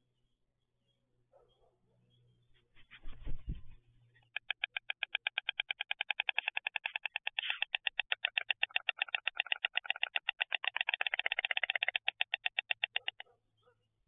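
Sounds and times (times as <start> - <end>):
stork clattering its bill: 4.3 - 13.2.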